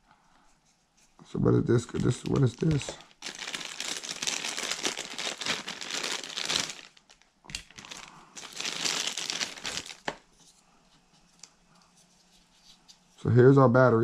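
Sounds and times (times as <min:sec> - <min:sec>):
plastic bag crinkling: 0:01.8 - 0:10.3.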